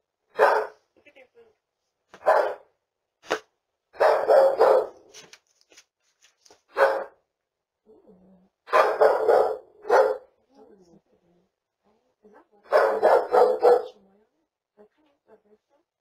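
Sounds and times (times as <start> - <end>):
dog barking: 0.3 - 0.8, 2.2 - 2.7, 4.0 - 5.1, 6.7 - 7.2, 8.7 - 10.4, 12.7 - 14.0.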